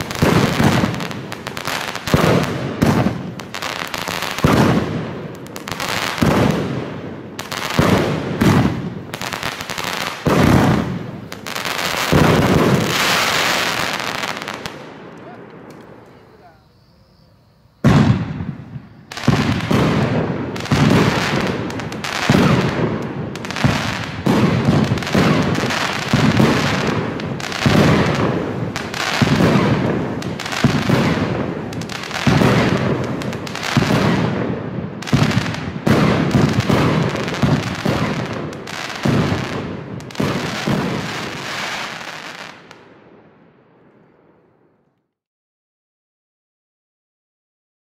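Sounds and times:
firework shots thumping: 0.0 - 1.1, 2.0 - 3.6, 4.4 - 16.2, 17.8 - 41.0
crackling firework stars: 0.0 - 45.2.

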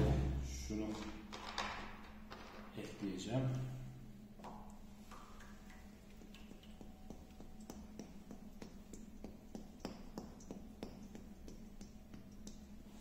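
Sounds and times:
steady low hum: 0.0 - 13.0
liquid dripping into metal tray: 4.4 - 12.8.

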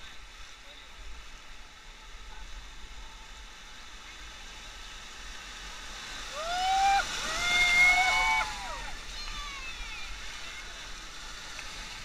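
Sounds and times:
river rapids rushing: 5.3 - 12.0
people shouting and whooping: 6.3 - 10.4.

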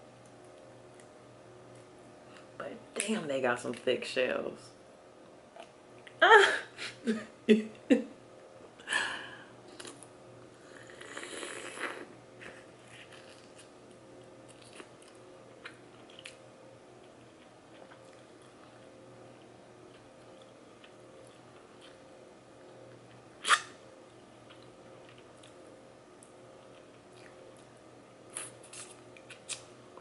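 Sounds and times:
soft chewing: 0.2 - 2.6, 9.6 - 30.0.

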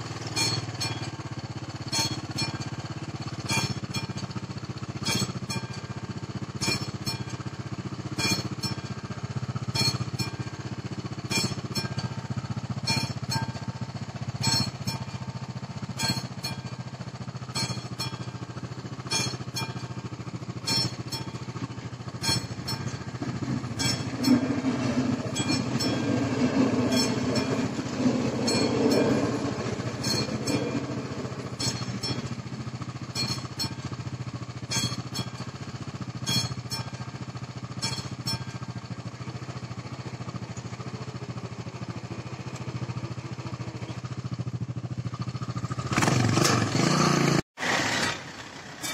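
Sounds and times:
level crossing warning bell: 0.0 - 45.9
electric train passing: 17.6 - 33.9.

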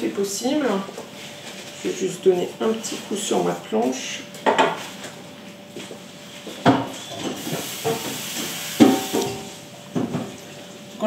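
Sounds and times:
hiss: 7.2 - 9.6.

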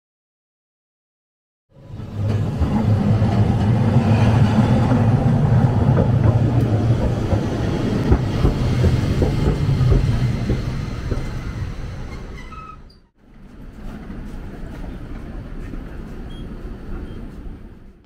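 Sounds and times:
rail vehicle passing: 1.7 - 18.0
irregular knocks: 5.6 - 11.5.

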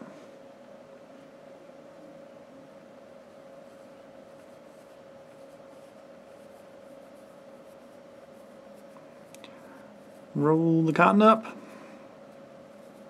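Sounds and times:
faint steady hum: 0.0 - 13.0
fingertips rubbing cotton: 3.4 - 10.5, 12.2 - 13.0.

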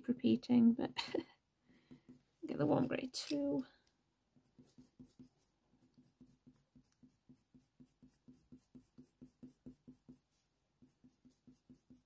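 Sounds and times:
pencil scratching on paper: 1.7 - 2.8, 4.3 - 12.0.

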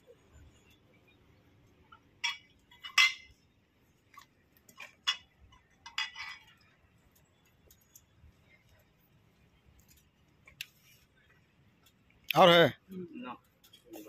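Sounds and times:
glass bottles clinking: 1.9 - 3.4.

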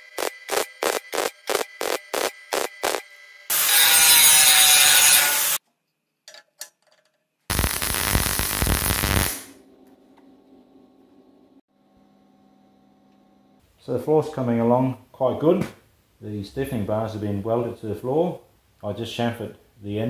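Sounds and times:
welding arc crackling: 0.0 - 5.6, 7.5 - 9.6.

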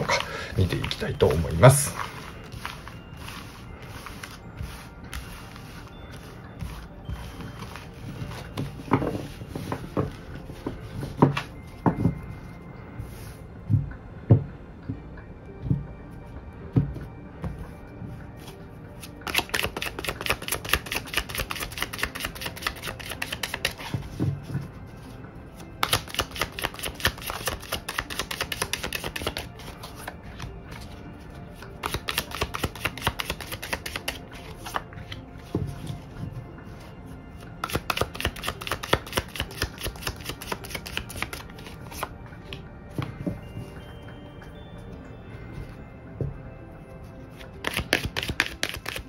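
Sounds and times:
cards being shuffled: 0.0 - 11.5, 19.0 - 25.1, 25.8 - 31.0, 31.6 - 36.0, 37.6 - 43.3, 47.3 - 49.0
soft background music: 0.0 - 49.0.

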